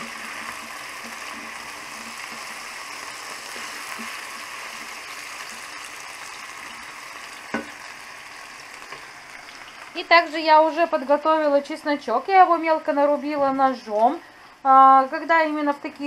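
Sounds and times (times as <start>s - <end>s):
wooden spatula stirring in pan: 0.0s - 7.8s
potatoes sizzling in oil: 0.0s - 16.0s.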